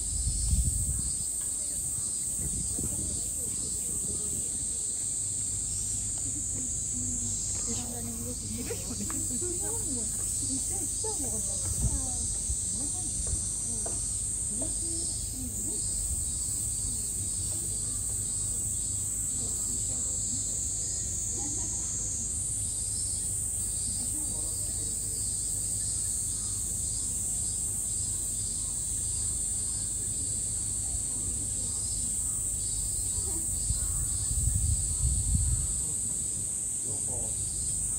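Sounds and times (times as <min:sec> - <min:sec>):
cicadas buzzing: 0:00.0 - 0:37.9
faint voices: 0:00.0 - 0:37.9.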